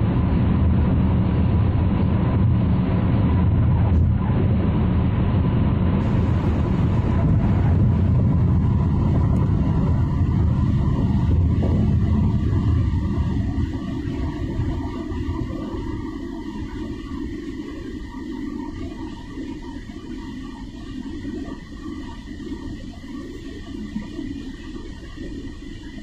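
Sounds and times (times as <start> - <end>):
car road and engine rumble: 1.6 - 15.8.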